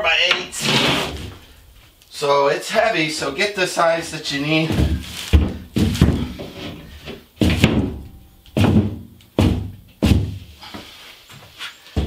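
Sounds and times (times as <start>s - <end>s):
heavy thumps on cement board: 8.6s - 10.4s.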